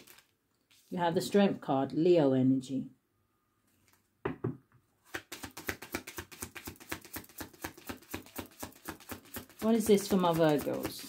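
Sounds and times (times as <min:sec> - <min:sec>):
cards being shuffled: 0:00.0 - 0:00.9, 0:05.1 - 0:11.0.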